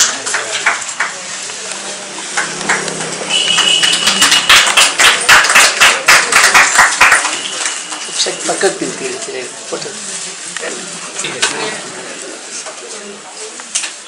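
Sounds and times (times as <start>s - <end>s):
people clapping in rhythm: 0.0s - 8.6s.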